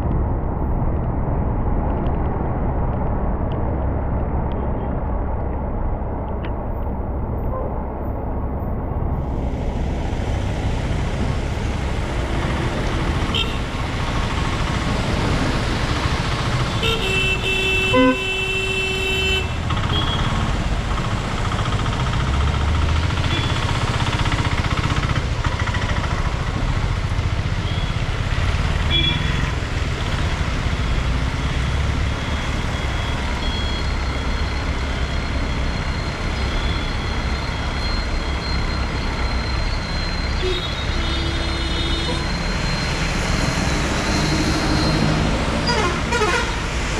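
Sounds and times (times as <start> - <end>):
passing vehicles rumbling: 0.0 - 46.9
vehicle horn honking: 16.8 - 20.3, 45.6 - 46.6.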